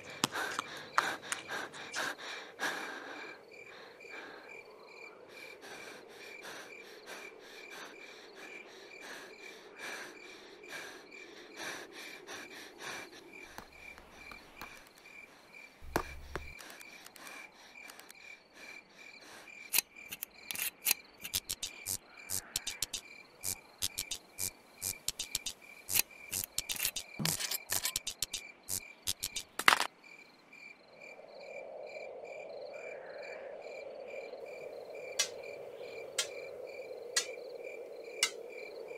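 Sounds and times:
crickets chirping: 0:00.0 - 0:38.9
metal torch clicking and rattling: 0:19.7 - 0:22.0, 0:24.9 - 0:28.4, 0:29.1 - 0:29.9.

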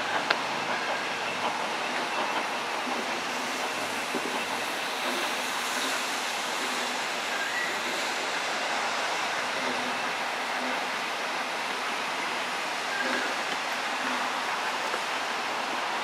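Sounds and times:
distant train running noise: 0:00.0 - 0:16.0.

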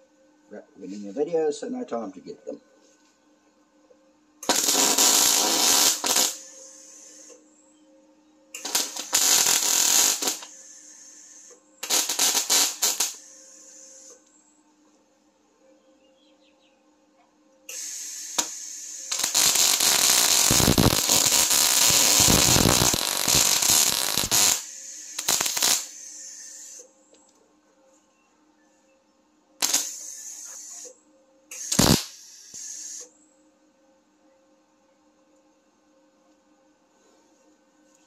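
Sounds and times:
welder arc crackling and spitting: 0:04.4 - 0:07.4, 0:08.6 - 0:14.2, 0:17.7 - 0:26.8, 0:29.6 - 0:30.9, 0:31.5 - 0:33.1.

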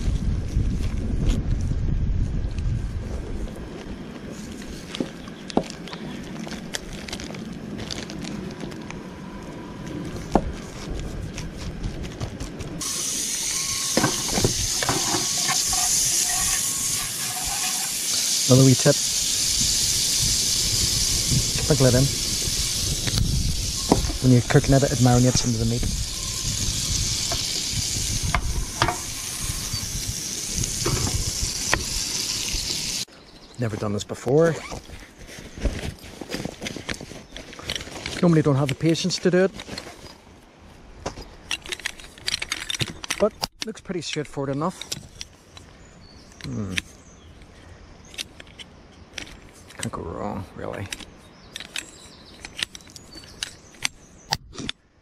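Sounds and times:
plastic wrapping crinkling: 0:06.0 - 0:09.0.

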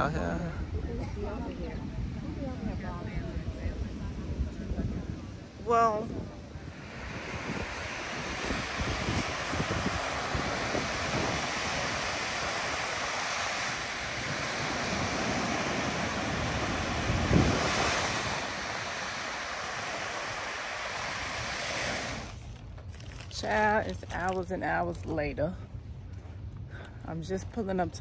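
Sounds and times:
wind buffeting microphone: 0:00.0 - 0:22.4
small waves breaking on shore: 0:05.5 - 0:22.6.

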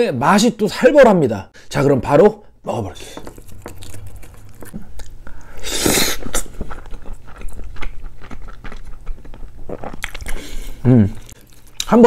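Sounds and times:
mouth chewing food: 0:02.9 - 0:11.9.

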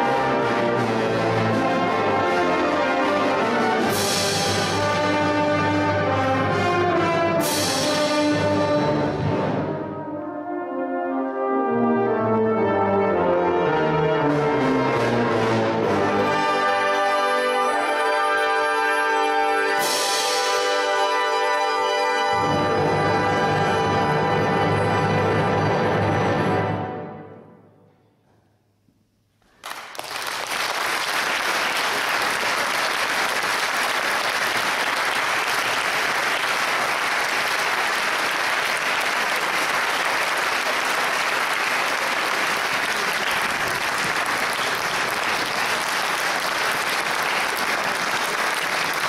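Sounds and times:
brass band held chord: 0:00.0 - 0:27.6
audience applauding: 0:29.5 - 0:49.0.

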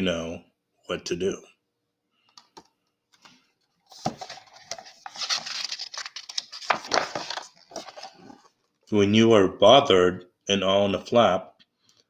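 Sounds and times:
book page turning: 0:03.2 - 0:08.6.

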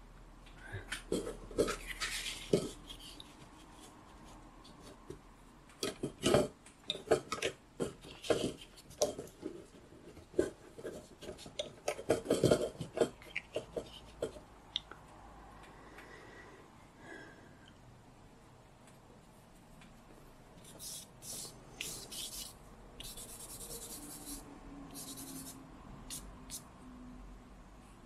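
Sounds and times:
paper rustling and scraping: 0:01.2 - 0:05.0.

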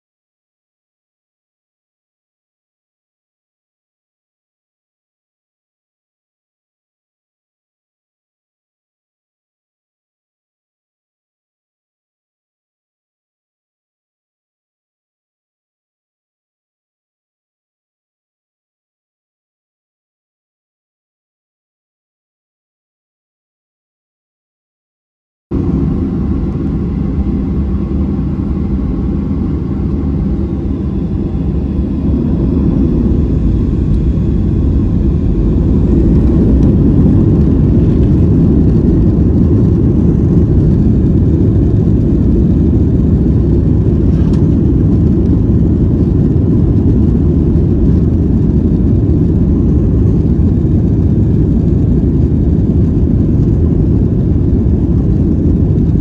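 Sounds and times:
jet engine rumble in cabin: 0:25.5 - 0:56.0.

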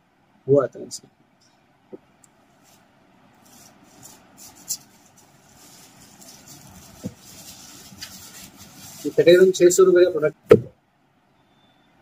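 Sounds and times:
low steady rumble: 0:00.0 - 0:11.4
paper rustling: 0:03.4 - 0:09.8
sharp paper crinkle: 0:03.4 - 0:09.8.

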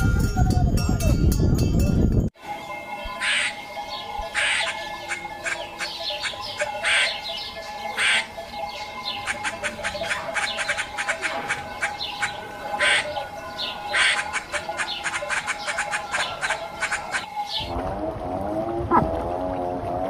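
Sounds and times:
rapid clicking chatter: 0:03.2 - 0:17.3
vultures hissing squawks: 0:04.4 - 0:07.2, 0:08.0 - 0:08.3, 0:09.2 - 0:13.1, 0:13.9 - 0:17.3.

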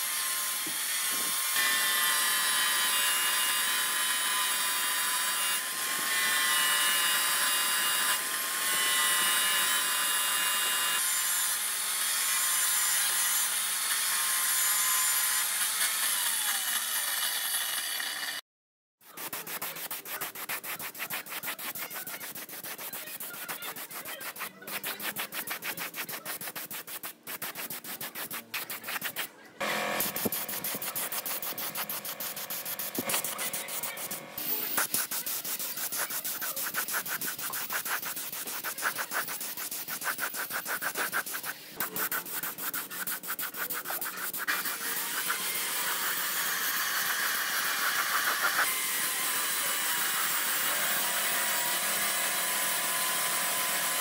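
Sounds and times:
rubbing strokes on a surface: 0:19.0 - 0:29.3, 0:30.0 - 0:46.3, 0:47.0 - 0:48.7.

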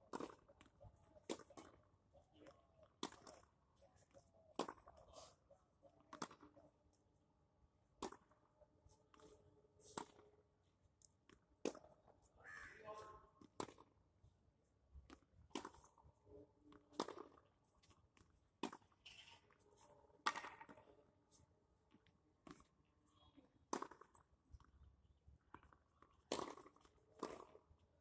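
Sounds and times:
tennis ball hitting racket and wall: 0:15.5 - 0:15.9, 0:16.9 - 0:17.9, 0:18.6 - 0:19.6, 0:20.2 - 0:20.9, 0:23.7 - 0:24.2, 0:25.5 - 0:27.6.

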